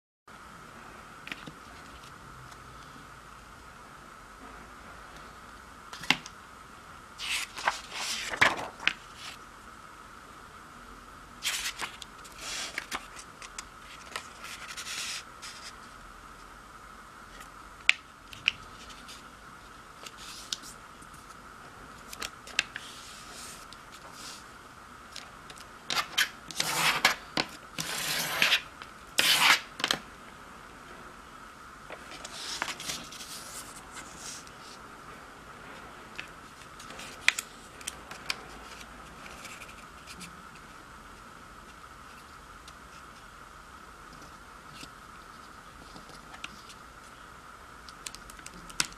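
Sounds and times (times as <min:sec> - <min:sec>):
paper rustling and crinkling: 0:07.2 - 0:09.4, 0:11.4 - 0:15.8, 0:31.9 - 0:34.5
ruler scraping paper: 0:13.9 - 0:15.8, 0:25.9 - 0:27.2, 0:27.8 - 0:29.7.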